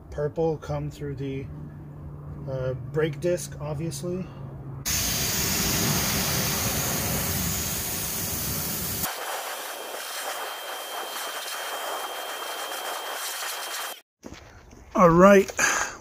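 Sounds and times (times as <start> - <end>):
pressure-washer jet hissing: 4.9 - 14.0.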